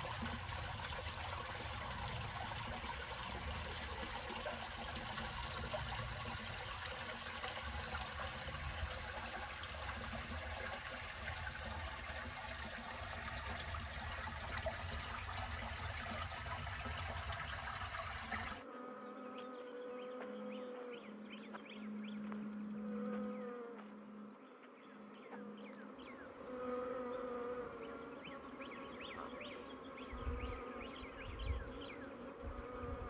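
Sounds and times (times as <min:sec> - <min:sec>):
creek trickling: 0:00.0 - 0:18.6.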